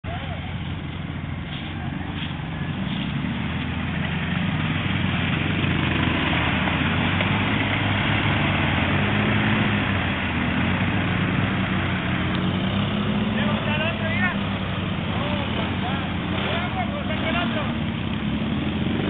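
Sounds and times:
quad bike engine in mud: 0.0s - 19.0s.

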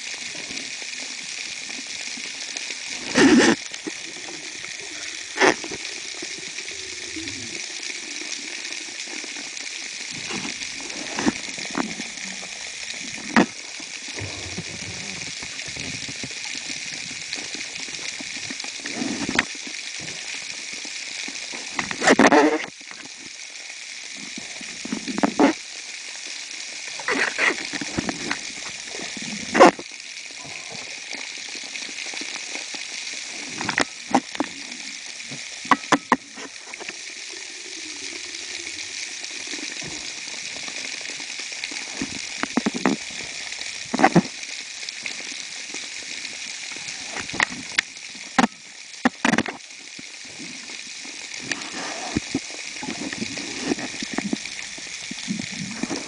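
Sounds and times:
underwater hiss of moving water: 0.0s - 56.0s.

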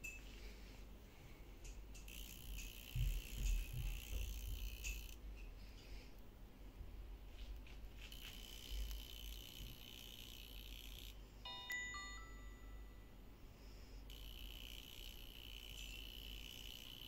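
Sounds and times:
faint high-pitched whine: 11.2s - 17.0s
two-note electronic chime: 11.5s - 13.2s.

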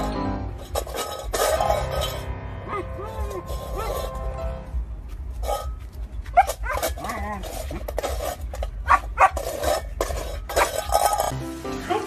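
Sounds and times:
puppy barking and yipping: 2.7s - 4.2s, 6.3s - 7.5s, 8.8s - 9.5s.

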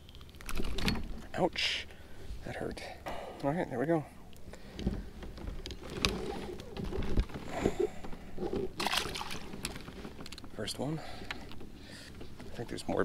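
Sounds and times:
fish splashing into water: 8.8s - 9.5s.

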